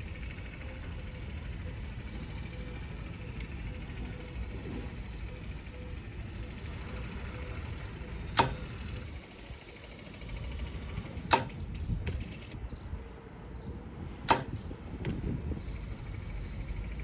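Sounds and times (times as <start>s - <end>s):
bow release crack: 8.4s - 8.8s, 11.3s - 11.6s, 14.3s - 14.7s.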